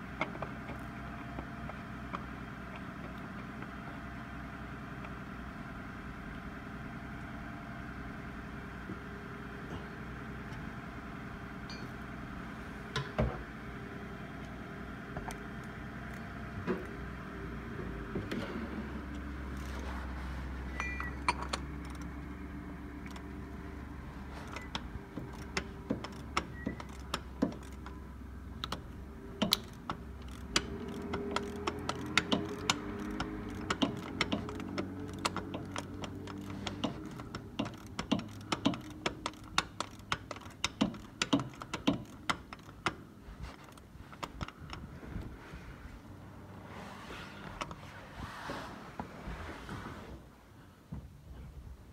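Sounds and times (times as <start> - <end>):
steady mechanical hum: 0.0 - 51.9
sharp metallic clicks: 24.5 - 28.0, 28.6 - 44.9.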